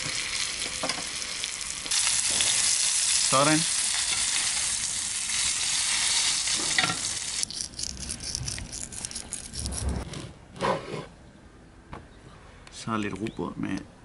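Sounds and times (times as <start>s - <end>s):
fish sizzling in a pan: 0.0s - 7.5s.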